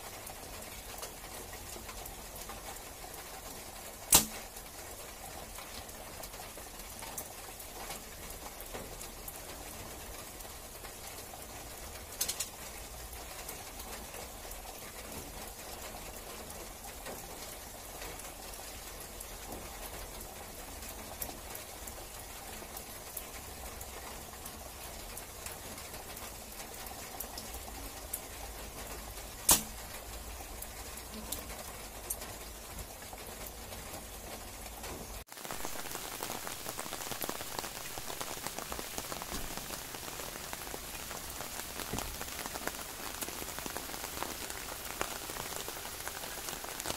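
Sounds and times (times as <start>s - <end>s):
rain falling: 0.0s - 46.9s
sharp snap: 4.1s - 4.4s, 29.5s - 29.8s.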